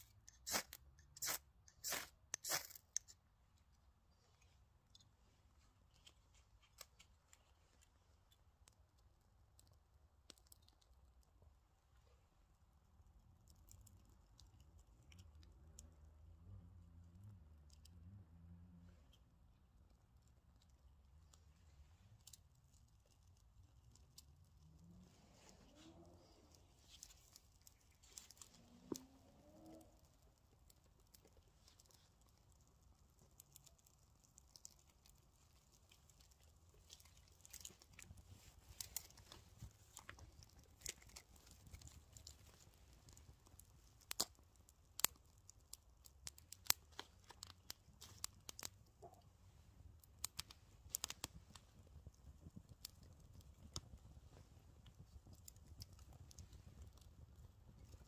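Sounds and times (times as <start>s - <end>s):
fire crackling and popping: 0.0s - 3.2s, 6.1s - 16.3s, 17.5s - 58.0s
dry twigs rustling: 22.0s - 49.0s.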